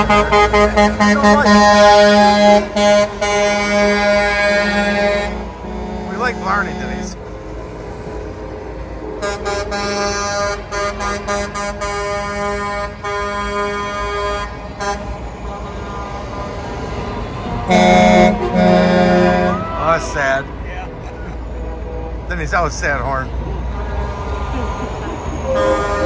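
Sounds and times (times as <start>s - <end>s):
truck air horn blasts: 0.0s - 7.2s, 9.2s - 20.0s, 23.7s - 26.0s
trucks rumbling past: 0.0s - 26.0s.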